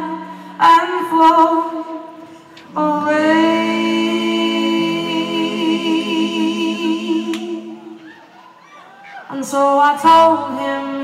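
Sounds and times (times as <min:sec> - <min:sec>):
voices singing a chord in harmony: 0:02.8 - 0:08.0.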